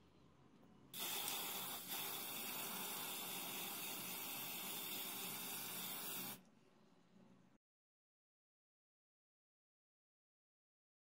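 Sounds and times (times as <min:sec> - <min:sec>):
spray paint hissing: 0:01.0 - 0:06.4.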